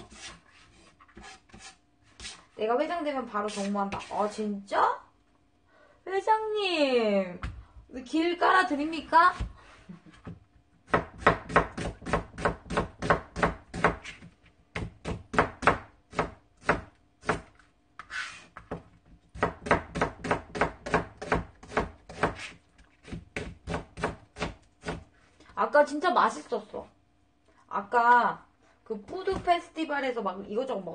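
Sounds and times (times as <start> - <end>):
knife chopping on cutting board: 3.5 - 4.2, 10.9 - 25.1.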